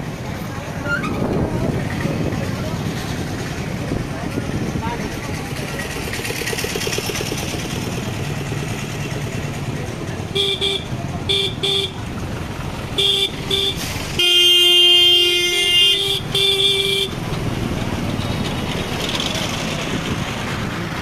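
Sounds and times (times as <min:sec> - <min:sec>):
street traffic: 0:00.0 - 0:21.0
vehicle horn tooting: 0:10.3 - 0:12.0, 0:13.0 - 0:17.2.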